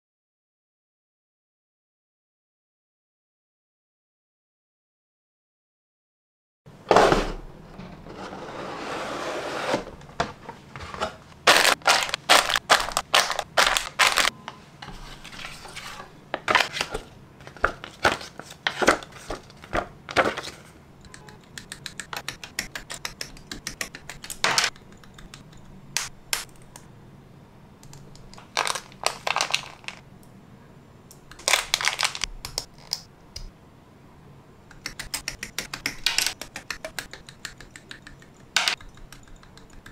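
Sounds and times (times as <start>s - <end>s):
plastic packaging rustling: 11.4s - 14.3s, 28.4s - 30.0s, 31.4s - 32.3s.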